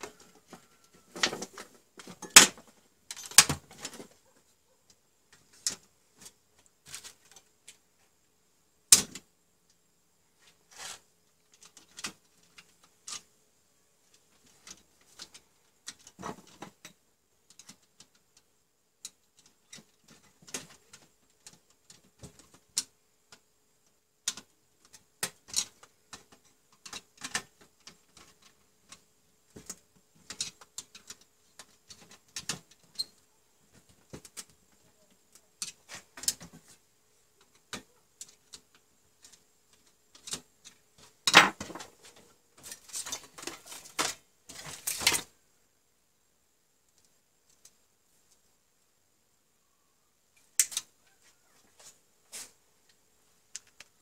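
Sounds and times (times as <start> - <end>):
small clicks and taps: 52.8 - 54.0.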